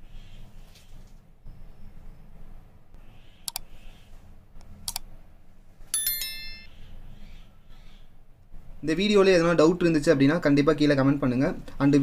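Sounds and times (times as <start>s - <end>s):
bright bell chime: 6.0s - 6.7s.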